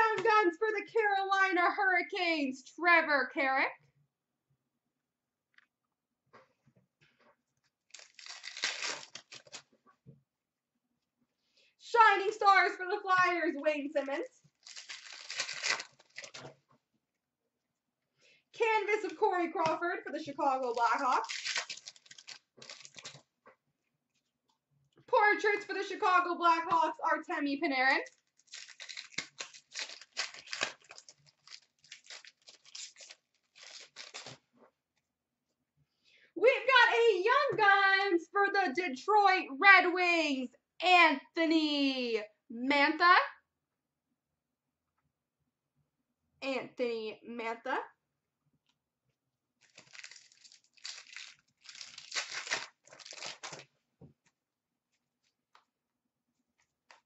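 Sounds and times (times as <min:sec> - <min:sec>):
wrapper tearing and crinkling: 0:07.9 - 0:09.7, 0:14.5 - 0:16.5, 0:20.1 - 0:23.3, 0:28.0 - 0:34.4, 0:49.6 - 0:53.7.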